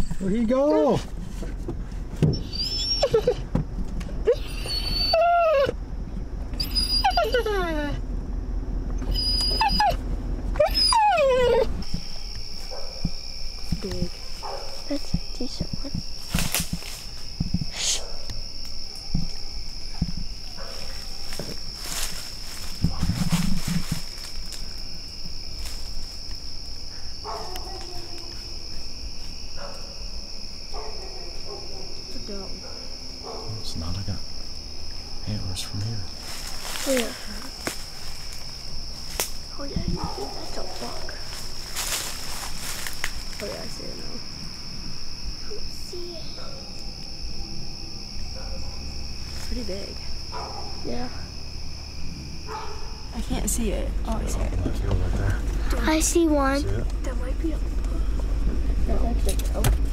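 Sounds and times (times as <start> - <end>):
crickets chirping: 0.0 - 59.9
dog whining: 2.2 - 3.5, 4.2 - 5.8, 6.6 - 8.0, 8.9 - 12.0.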